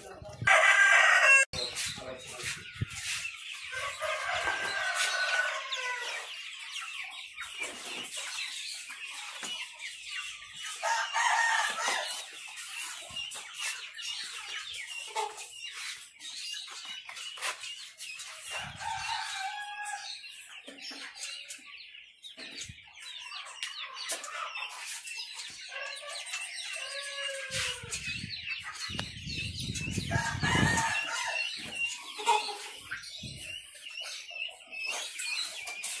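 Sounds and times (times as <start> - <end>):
chicks peeping: 0.0 - 36.0
hens clucking: 0.0 - 36.0
rooster crowing: 0.5 - 1.5.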